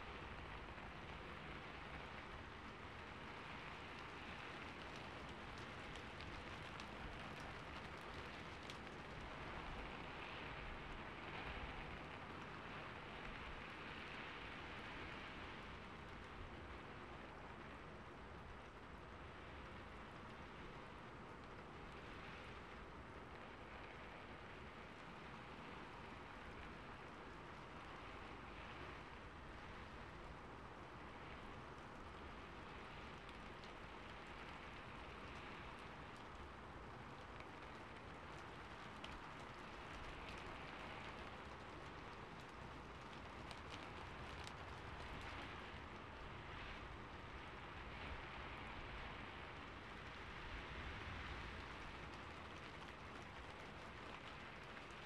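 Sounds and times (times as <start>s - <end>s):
rain on a rooftop: 0.0s - 55.0s.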